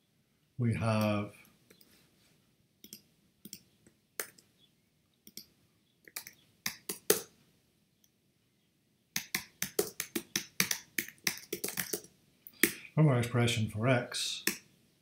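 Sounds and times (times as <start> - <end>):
typing on computer keyboard: 6.1 - 7.3, 9.2 - 12.1.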